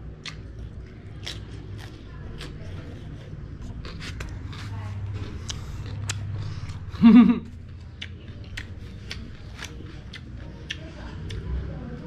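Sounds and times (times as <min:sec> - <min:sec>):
chewing mouth clicks and smacks: 0:00.1 - 0:02.8, 0:03.8 - 0:06.9, 0:07.7 - 0:11.5.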